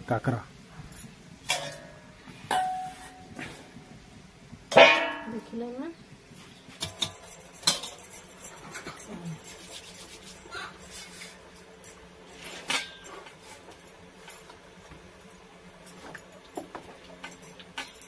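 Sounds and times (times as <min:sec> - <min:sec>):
utensils clinking on plates: 0:06.8 - 0:11.2.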